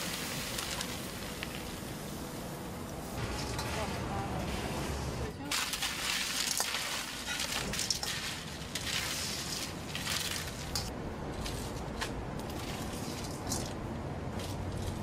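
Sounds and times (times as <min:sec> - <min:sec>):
popcorn rustling and crunching: 0:00.0 - 0:02.0, 0:05.4 - 0:15.0.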